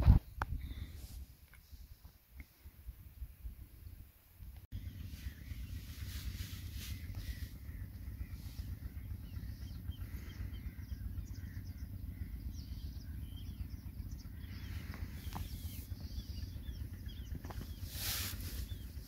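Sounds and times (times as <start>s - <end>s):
steady low rumble: 2.6s - 19.0s
small birds chirping: 4.7s - 19.0s.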